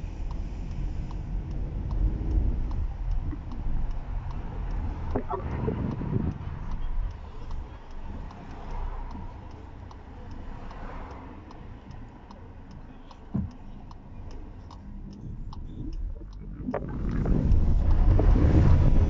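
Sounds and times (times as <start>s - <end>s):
turn signal ticking: 0.0s - 19.0s
low steady hum: 11.3s - 19.0s.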